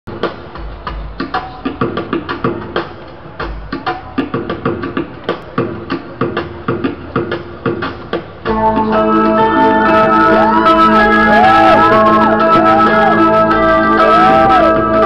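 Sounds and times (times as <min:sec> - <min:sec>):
pitched musical notes: 0:08.4 - 0:15.0.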